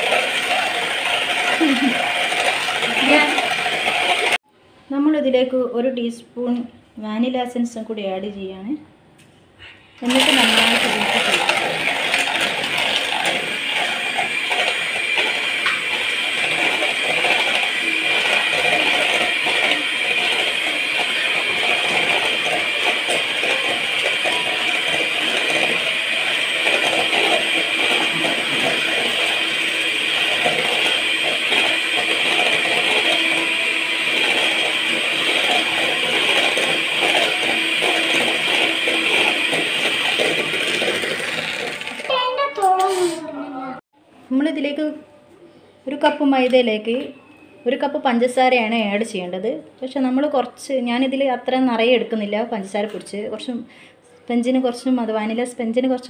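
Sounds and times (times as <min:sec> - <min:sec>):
electric hand mixer running: 0:00.0 - 0:04.4, 0:10.0 - 0:42.5
metal beaters rattling against bowl: 0:00.0 - 0:04.4, 0:10.0 - 0:42.2.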